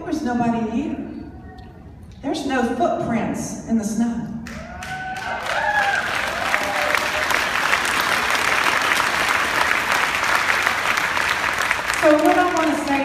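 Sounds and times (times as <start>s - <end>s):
audience applauding: 4.5s - 13.0s.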